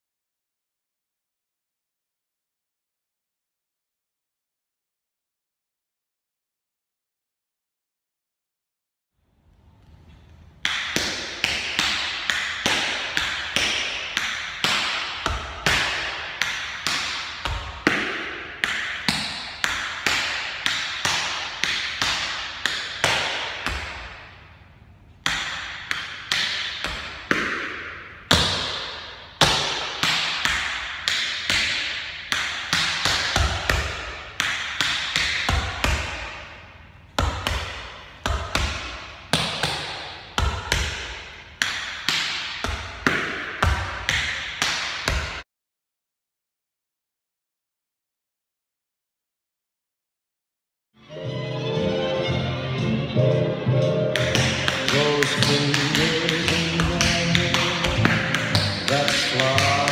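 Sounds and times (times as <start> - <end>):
tap shoes on hard floor: 54.1 - 59.9.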